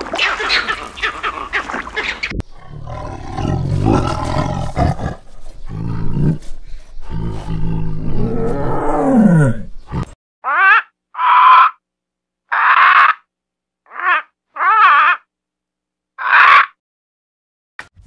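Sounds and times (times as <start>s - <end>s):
macaque calling: 0.1s - 2.4s, 10.4s - 11.8s, 13.9s - 15.3s, 16.2s - 16.7s
tigers growling and roaring: 2.4s - 10.2s.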